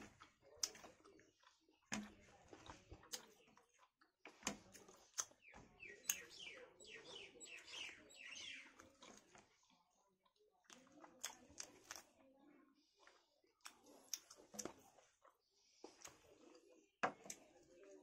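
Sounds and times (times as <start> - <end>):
people eating with hands: 0.0 - 18.0
bird chirping: 5.2 - 9.1.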